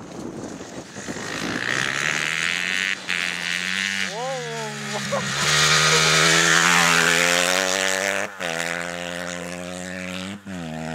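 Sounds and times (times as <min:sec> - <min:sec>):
motocross bike engine: 0:00.0 - 0:10.9.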